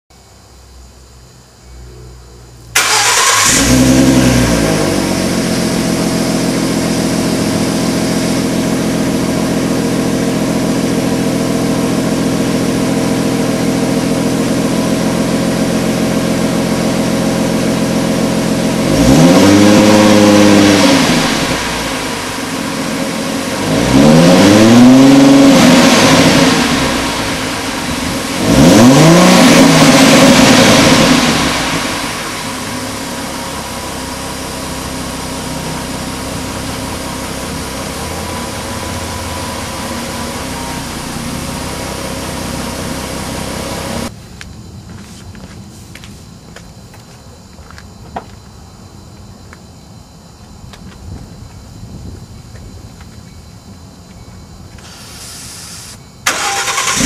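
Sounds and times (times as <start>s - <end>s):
car engine idling: 1.6s - 19.2s, 19.9s - 23.9s, 25.2s - 44.1s, 56.2s - 57.0s
car engine starting: 1.8s - 44.1s, 54.8s - 57.0s
car engine revving: 1.9s - 44.1s, 56.3s - 57.0s.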